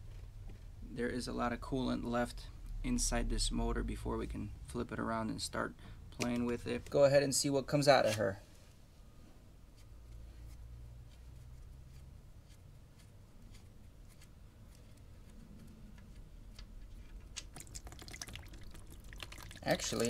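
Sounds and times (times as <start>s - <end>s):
low steady hum: 0.0s - 20.0s
oil running into tub: 17.4s - 20.0s.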